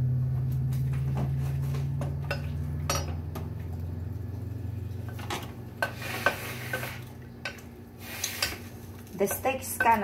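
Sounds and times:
low hum: 0:00.0 - 0:08.0
wooden spoon stirring in pot: 0:04.3 - 0:10.0
spoon knocking against pot: 0:09.2 - 0:10.0.

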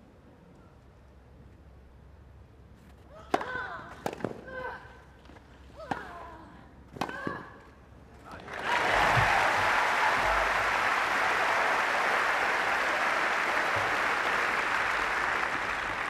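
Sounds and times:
large crowd applauding: 0:08.3 - 0:16.0.

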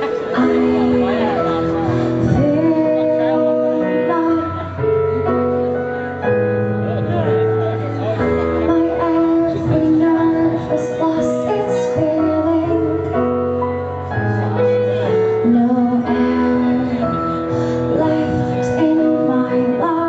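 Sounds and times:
woman singing a pop ballad: 0:00.0 - 0:06.0, 0:08.6 - 0:13.6, 0:15.0 - 0:20.0.

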